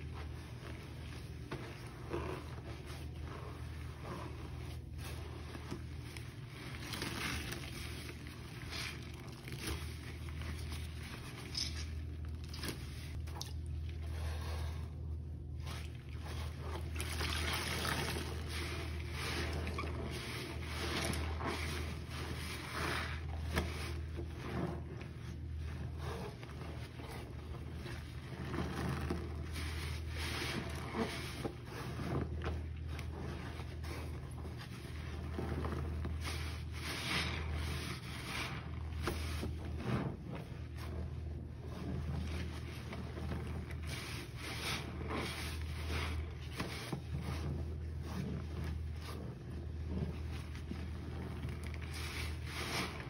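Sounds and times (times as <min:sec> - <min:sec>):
water sloshing: 0:00.0 - 0:14.9, 0:15.5 - 0:25.0
steady low hum: 0:00.0 - 0:53.0
wet sponge squelching: 0:00.0 - 0:53.0.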